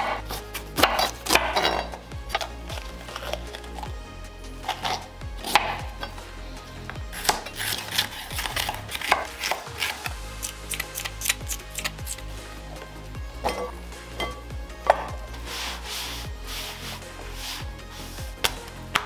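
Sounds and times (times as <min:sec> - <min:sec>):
knife slicing on wooden board: 0:00.0 - 0:02.5, 0:07.2 - 0:12.2.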